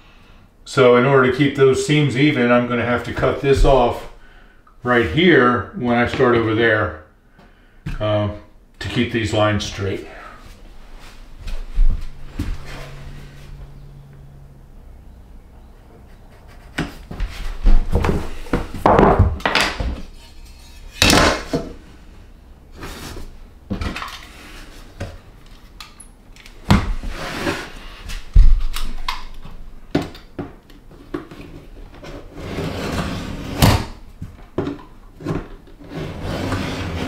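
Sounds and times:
planks knocking and clacking: 17.8 - 20.0.

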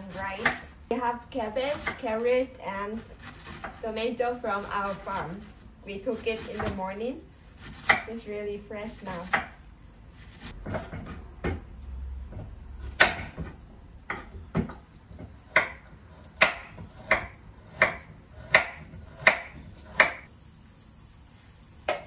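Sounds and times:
knife chopping on wooden board: 1.6 - 2.2, 3.0 - 3.9, 6.2 - 6.9, 7.6 - 8.1, 9.1 - 9.6, 10.4 - 11.6, 12.4 - 20.3.

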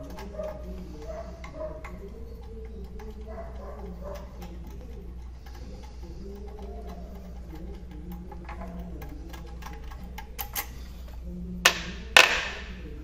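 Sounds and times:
light clicks of hand work on bolts: 0.0 - 12.6
steady low hum: 0.0 - 13.0.

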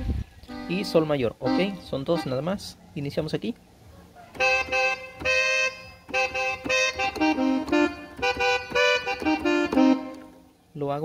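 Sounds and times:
keyboard accordion melody: 0.4 - 2.8, 4.3 - 10.6.

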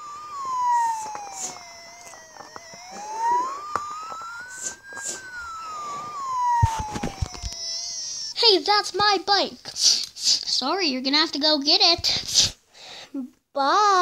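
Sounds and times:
siren wailing: 0.0 - 8.4.

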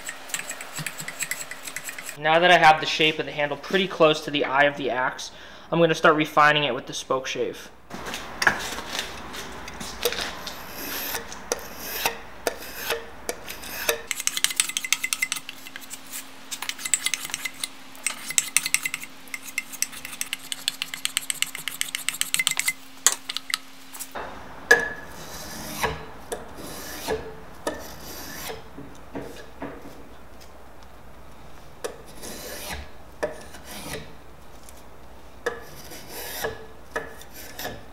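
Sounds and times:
spokeshave scraping wood: 0.0 - 2.2, 8.0 - 24.2, 24.8 - 30.1, 32.0 - 34.8, 35.5 - 37.9
faint steady hum: 0.0 - 37.9.

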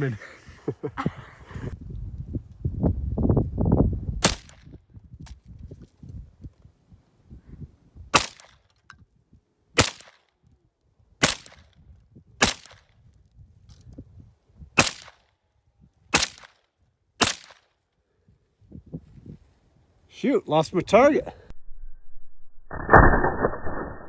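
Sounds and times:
carbine gunshots: 8.2 - 8.5, 9.8 - 10.2, 11.2 - 11.6, 12.4 - 12.8, 14.8 - 15.2, 16.1 - 16.6, 17.2 - 17.6.

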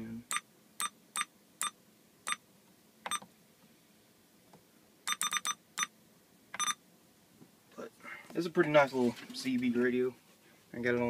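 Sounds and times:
short electronic beeps: 0.3 - 2.4, 5.1 - 5.9, 6.6 - 6.8.

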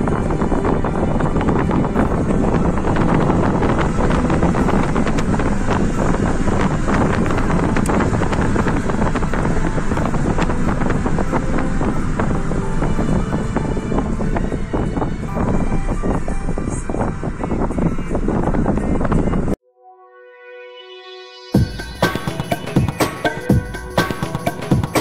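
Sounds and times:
car and tyres rumbling on road: 0.0 - 19.6
microphone crackles: 0.0 - 19.6
wind buffeting microphone: 0.0 - 19.6.

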